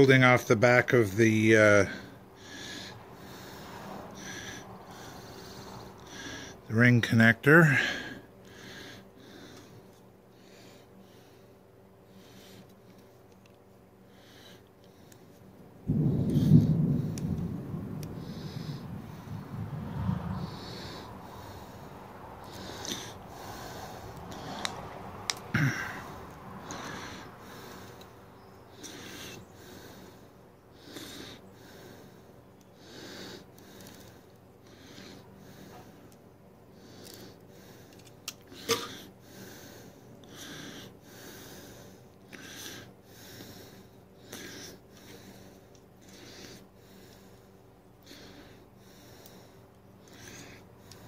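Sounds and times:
heavy breathing: 1.5 - 6.7, 7.5 - 13.2, 14.0 - 51.0
breathing close to microphone: 1.9 - 6.7, 18.0 - 24.9.

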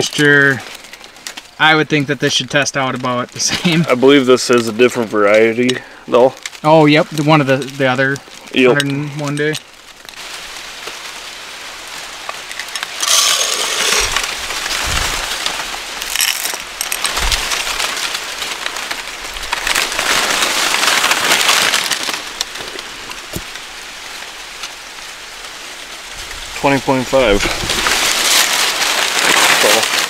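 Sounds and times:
dry leaves rustling and crackling: 0.0 - 30.0
low bumps: 14.0 - 18.1.

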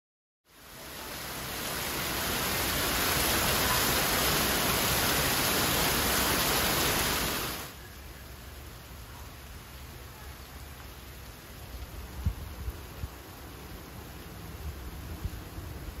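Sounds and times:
rain hiss: 0.5 - 16.0
water cascading onto car: 1.2 - 7.7.

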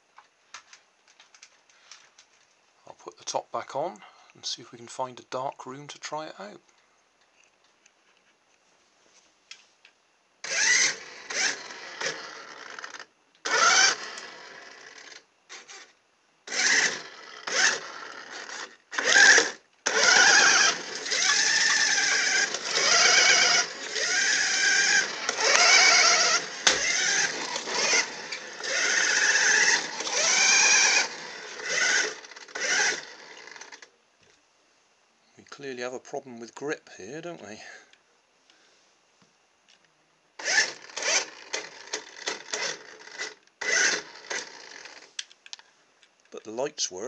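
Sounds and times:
toy car electric motor whining: 10.4 - 15.9, 16.5 - 33.9, 40.4 - 45.2.

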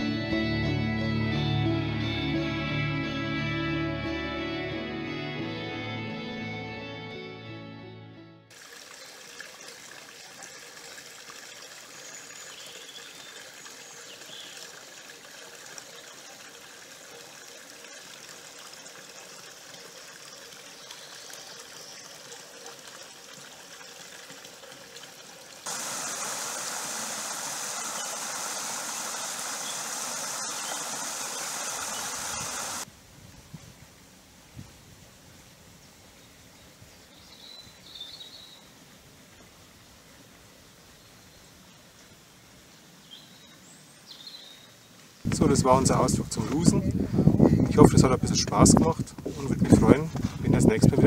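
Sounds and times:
stream cascading over rocks: 8.5 - 32.9
stream trickling over stones: 8.5 - 32.9, 41.6 - 51.0.

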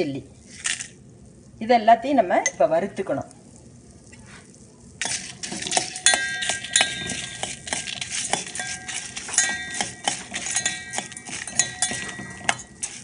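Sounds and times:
metal spoon scraping steel pan: 5.0 - 13.0
seeds rattling: 5.0 - 13.0.

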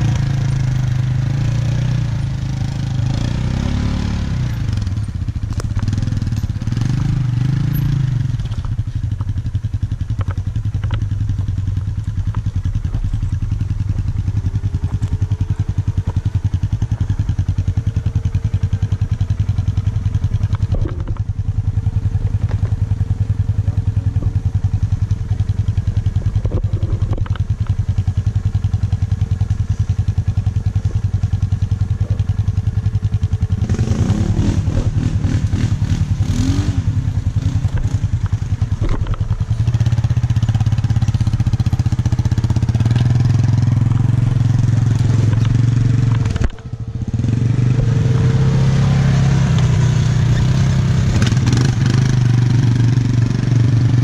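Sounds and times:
engine revving and clatter: 0.0 - 54.0
quad engine running: 0.0 - 54.0.

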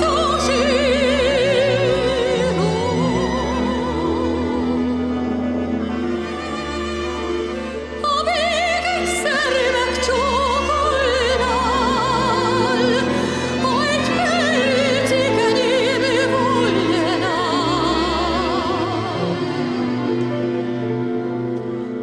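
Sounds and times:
woman singing operatically: 0.0 - 4.8, 8.0 - 19.9
orchestral accompaniment: 0.0 - 22.0.

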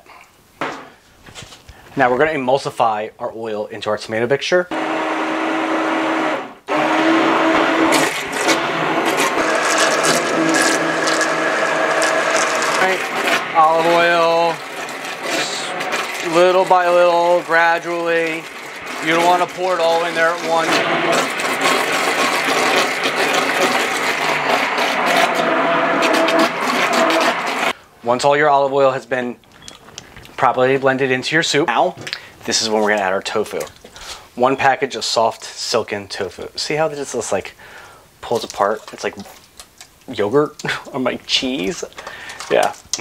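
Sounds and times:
churning soup: 4.7 - 27.8
immersion blender motor whine: 4.7 - 27.8.

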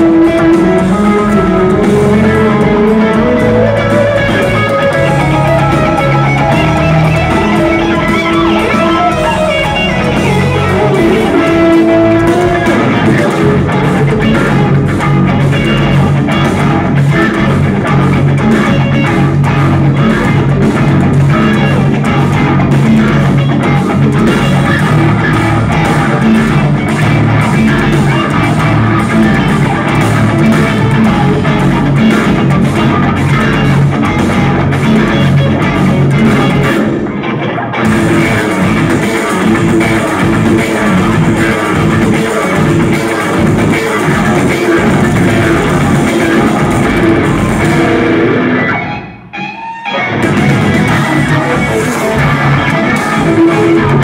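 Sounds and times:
electric guitar melody: 0.0 - 54.0
live progressive metal band: 0.0 - 54.0.

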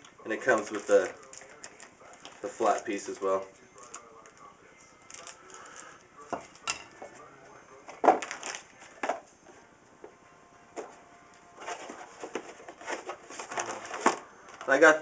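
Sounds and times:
cardboard boxes rustling: 11.6 - 14.9.

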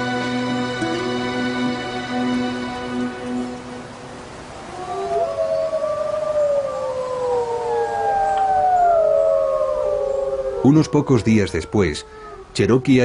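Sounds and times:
wolves howling: 4.6 - 13.0.

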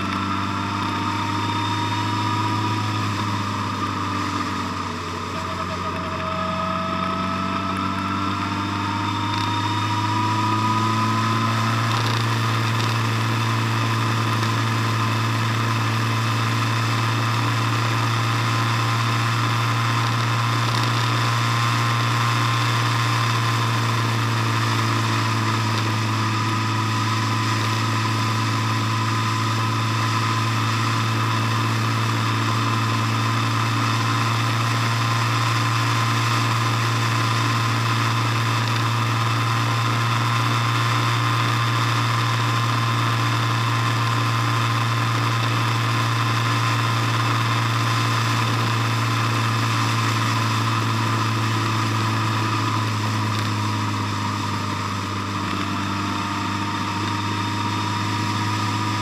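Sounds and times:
car engine accelerating and cruising: 0.0 - 59.0.

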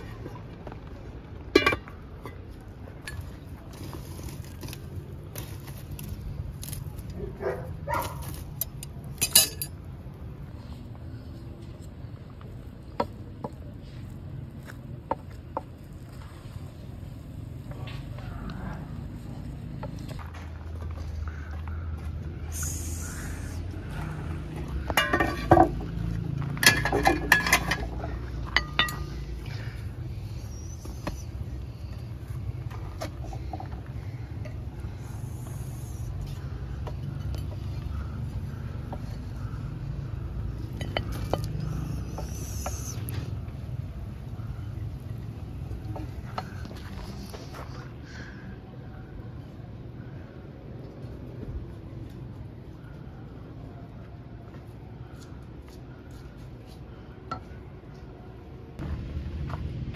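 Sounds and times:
metal tongs clinking on wood: 8.2 - 9.8.

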